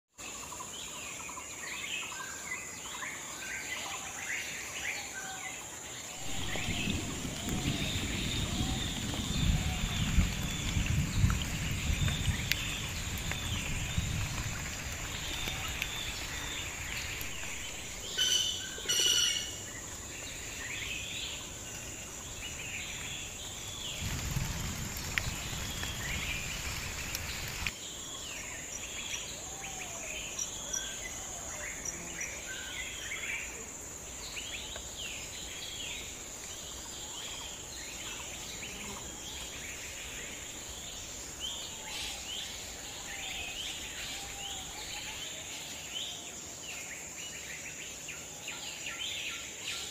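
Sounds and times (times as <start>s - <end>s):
high insect drone: 2.1s - 49.9s
low rumble: 6.2s - 18.2s
loud pitched bird calls: 15.2s - 19.7s.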